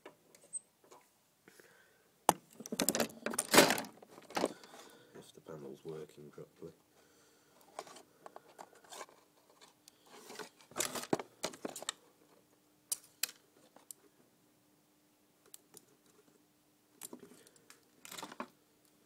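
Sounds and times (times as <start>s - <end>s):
small parts clicking and tapping: 12.9s - 14.0s, 17.0s - 19.0s.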